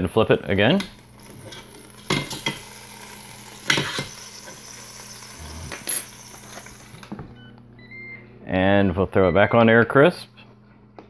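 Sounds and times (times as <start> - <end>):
steak sizzling: 0.0 - 7.2.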